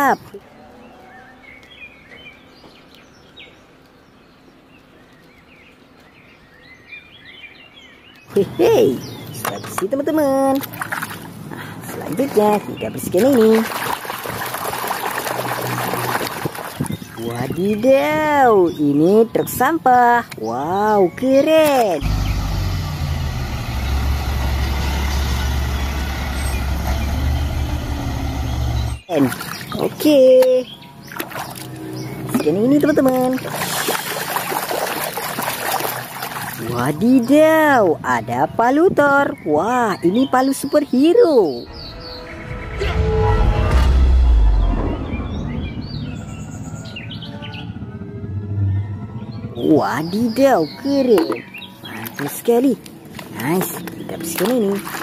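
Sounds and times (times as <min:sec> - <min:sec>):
faint outdoor background hiss: 0:00.0 - 0:13.1
small birds chirping: 0:00.0 - 0:23.0, 0:23.7 - 0:42.7, 0:49.2 - 0:55.0
garbage truck engine droning: 0:22.0 - 0:29.1, 0:41.6 - 0:51.8.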